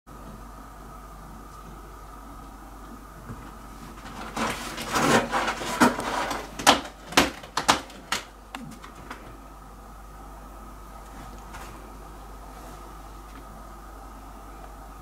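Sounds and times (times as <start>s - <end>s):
cat scratching cardboard box: 4.1s - 7.8s.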